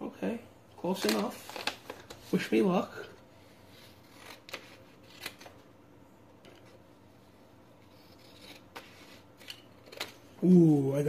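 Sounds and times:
paper handling: 0.8 - 5.7
scissors cutting paper: 4.0 - 5.5.

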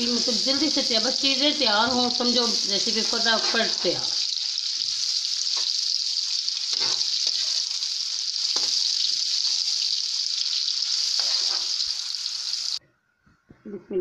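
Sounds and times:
onions sizzling in pan: 0.0 - 12.8
spatula scraping pan: 2.8 - 4.9, 6.7 - 9.6, 10.9 - 12.0.

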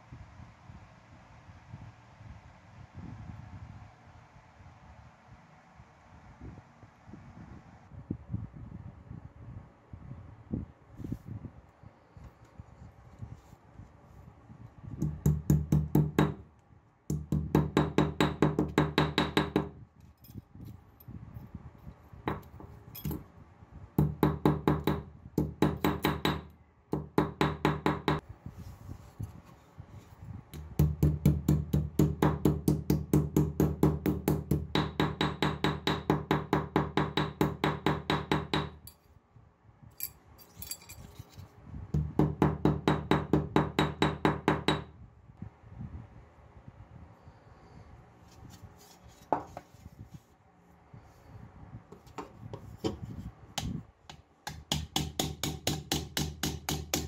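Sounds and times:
hammer tapping sheet metal: 54.5 - 57.0.

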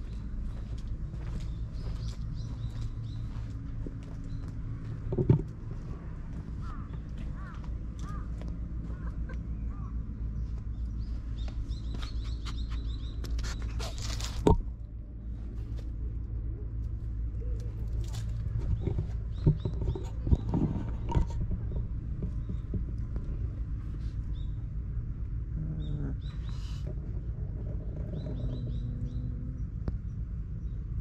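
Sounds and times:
small birds chirping: 0.0 - 5.1, 5.8 - 14.5, 16.8 - 24.8, 25.5 - 31.0
steady low rumble: 0.0 - 31.0
soft knocks and clicks: 5.0 - 5.6.

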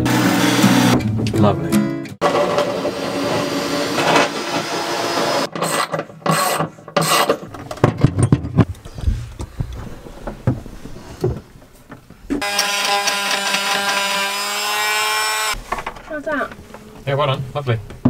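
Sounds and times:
knocks and clunks on wood: 6.9 - 12.4.

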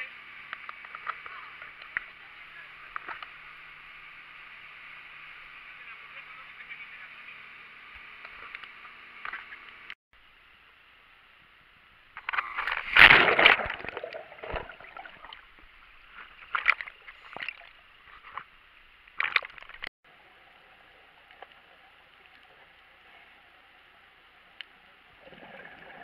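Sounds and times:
faint steady hiss: 0.0 - 26.0
water splashing against camera housing: 12.2 - 18.5, 19.1 - 19.9.

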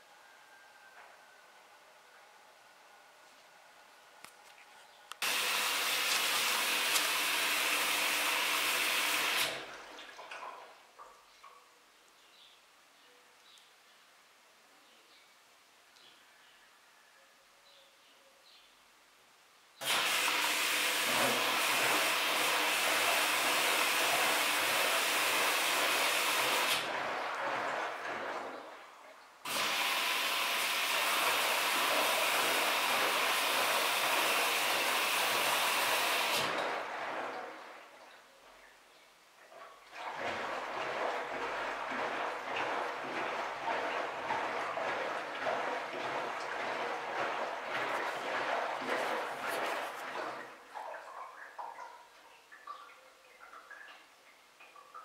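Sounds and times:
washing machine rushing noise: 5.2 - 10.2, 19.8 - 38.1, 39.8 - 51.0.

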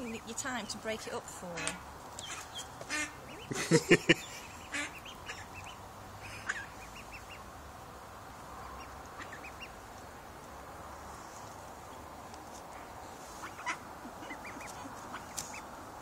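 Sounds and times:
ducklings peeping: 0.0 - 7.6, 8.4 - 12.1, 12.7 - 15.8
duck quacking: 1.5 - 3.8, 4.4 - 7.4, 13.4 - 15.6.

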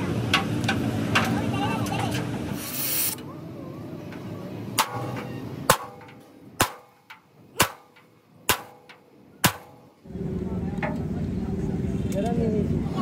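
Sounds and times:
hammer striking metal: 4.8 - 9.9.

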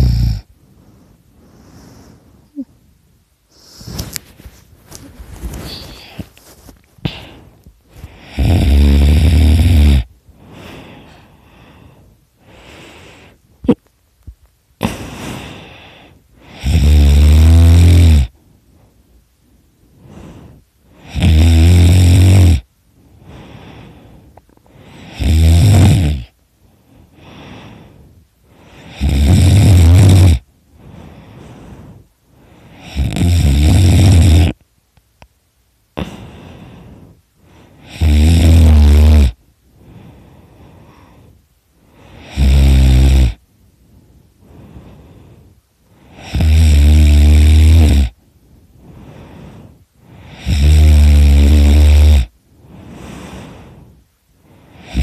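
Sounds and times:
person snoring loudly: 0.0 - 0.5, 8.1 - 10.1, 16.4 - 18.3, 21.0 - 22.7, 25.0 - 26.4, 28.9 - 30.4, 32.8 - 34.6, 37.8 - 39.4, 42.2 - 43.4, 46.1 - 48.2, 50.3 - 52.3, 54.8 - 55.0
soft breathing: 0.0 - 9.0, 10.0 - 16.7, 18.3 - 21.2, 22.8 - 29.1, 30.4 - 33.2, 34.5 - 38.0, 39.3 - 42.4, 43.3 - 46.4, 48.1 - 50.6, 51.4 - 55.0.

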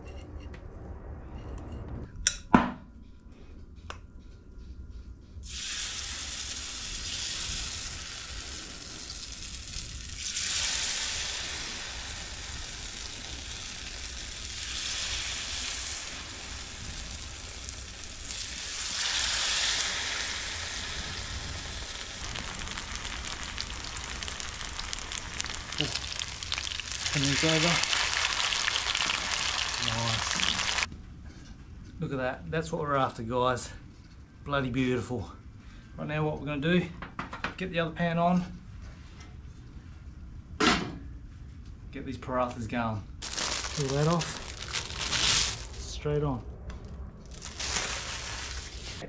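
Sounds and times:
fish frying in a pan: 5.5 - 30.9.

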